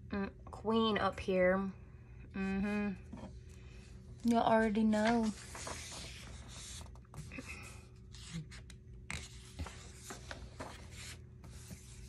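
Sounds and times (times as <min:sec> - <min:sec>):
paper rustling and crinkling: 0:04.6 - 0:12.0.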